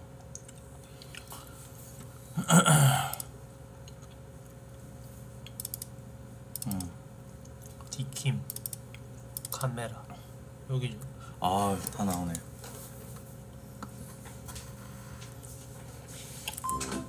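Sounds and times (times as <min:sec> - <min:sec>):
loud burp: 0:02.4 - 0:03.2.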